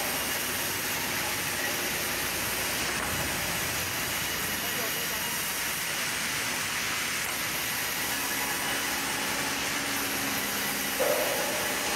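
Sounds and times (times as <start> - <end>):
low hum: 11.0 - 11.9.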